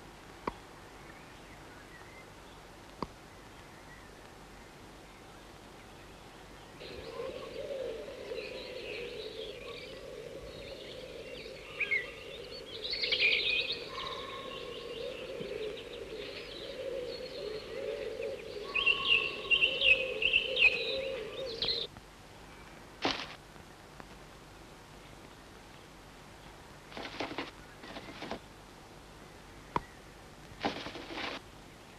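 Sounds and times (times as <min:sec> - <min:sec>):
chickadees chirping: 0:06.8 - 0:21.9, 0:26.9 - 0:28.4.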